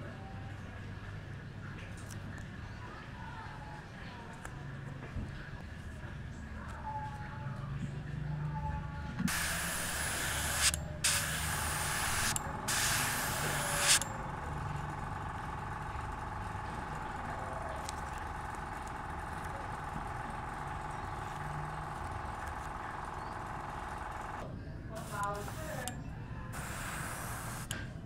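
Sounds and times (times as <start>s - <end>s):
steady low hum: 4.8s - 28.0s
airbrush spraying paint: 9.3s - 14.0s, 25.0s - 25.9s, 26.6s - 27.7s.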